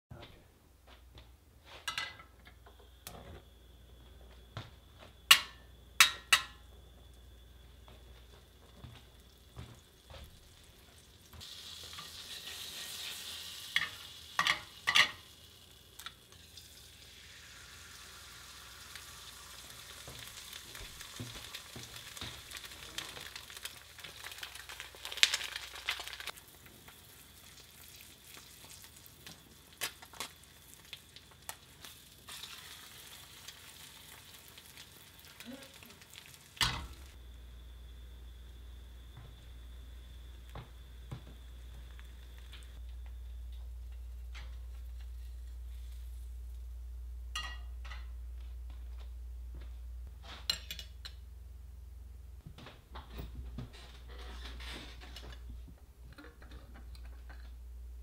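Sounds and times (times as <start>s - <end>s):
egg frying sizzle: 5.3s - 46.7s
fat sizzling in frying pan: 7.6s - 37.2s, 38.2s - 46.7s.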